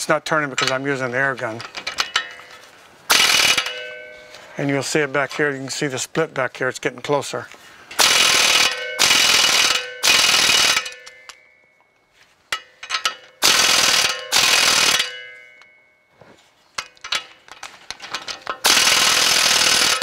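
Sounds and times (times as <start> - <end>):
pneumatic air ratchet bursts: 3.1 - 3.7, 8.0 - 11.0, 13.4 - 15.1, 18.6 - 20.0.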